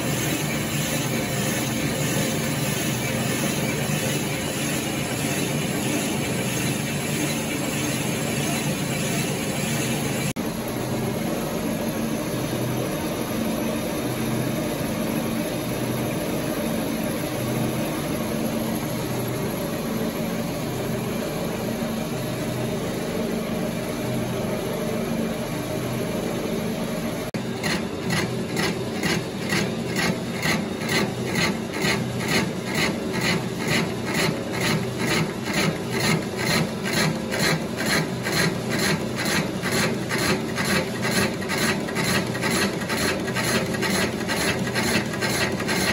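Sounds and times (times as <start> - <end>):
lathe tool rasping cut: 0.0 - 10.4, 27.4 - 45.9
rapid mechanical pulsing: 0.0 - 10.4, 27.4 - 45.9
lathe running: 0.0 - 13.4, 27.4 - 45.9.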